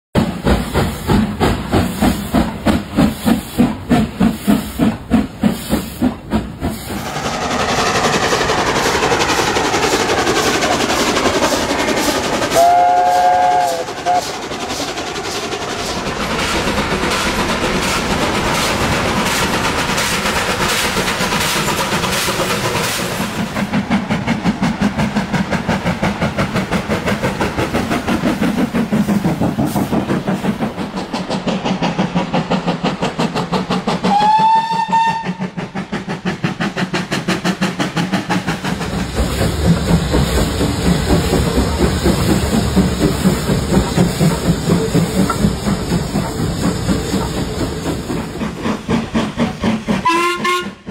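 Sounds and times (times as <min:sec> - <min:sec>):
steam locomotive exhaust chuffing: 0:00.2 - 0:50.9
steam whistle blast: 0:12.5 - 0:14.3, 0:34.1 - 0:35.4, 0:50.0 - 0:50.9.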